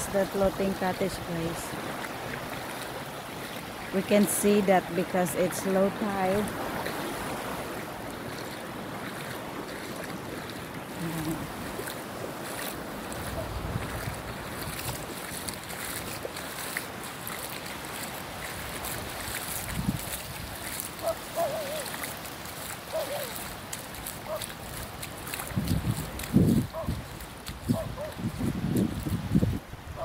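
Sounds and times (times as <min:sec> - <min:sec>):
small waves lapping: 0:00.0 - 0:30.0
wind buffeting microphone: 0:12.5 - 0:16.0, 0:18.6 - 0:21.6, 0:24.6 - 0:30.0.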